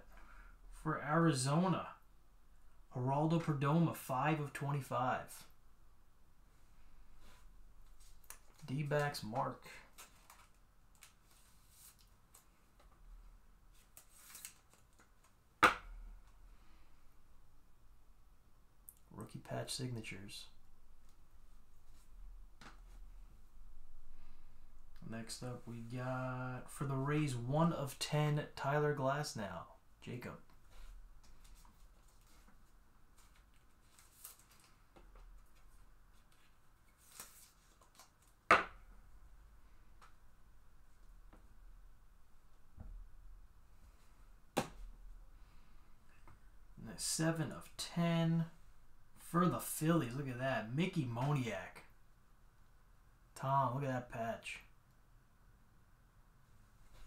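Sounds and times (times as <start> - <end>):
hands rustling a card: 9.8 - 12.9, 13.7 - 15.4, 30.6 - 38.5.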